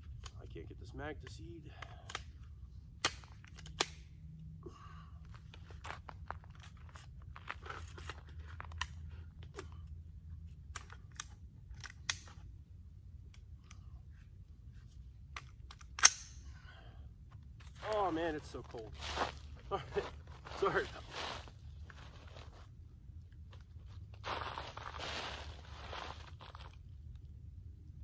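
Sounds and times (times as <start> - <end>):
rifle metallic clicks and clacks: 1.2 - 2.4, 3.0 - 4.1, 10.6 - 12.5, 15.3 - 16.4.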